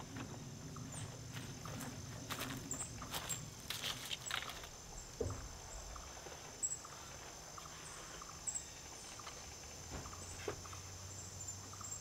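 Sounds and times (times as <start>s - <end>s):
faint footsteps: 1.0s - 8.3s.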